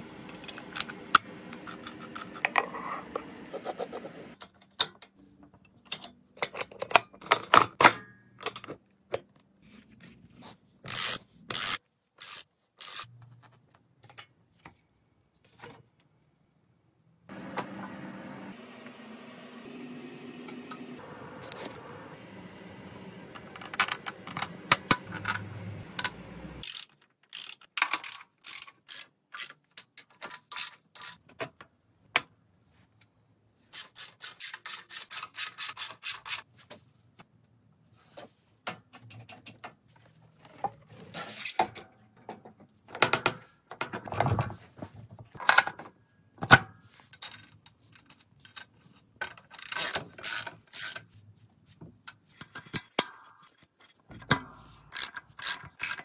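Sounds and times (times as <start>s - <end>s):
metal parts clicking and knocking: 4.4s - 8.8s, 23.5s - 31.5s, 47.1s - 51.1s, 54.2s - 56.0s
low steady hum: 17.3s - 26.6s.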